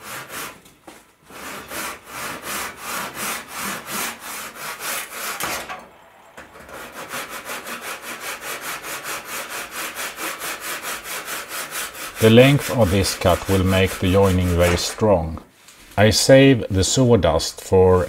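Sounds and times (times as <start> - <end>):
hand saw cutting wood: 0.0 - 0.6, 1.2 - 5.9, 6.5 - 15.2.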